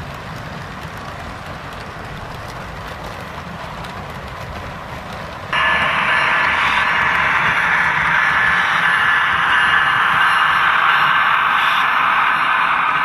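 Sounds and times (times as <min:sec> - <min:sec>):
buzzy hiss with high tone: 0:05.6 - 0:13.0.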